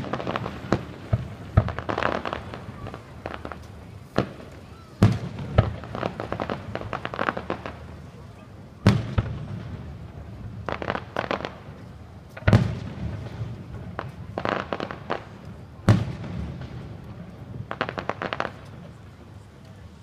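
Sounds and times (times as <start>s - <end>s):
firework shell bursts rumbling: 0.0s - 8.0s
rapid firework pops: 0.0s - 8.0s, 8.8s - 9.8s, 10.7s - 18.9s.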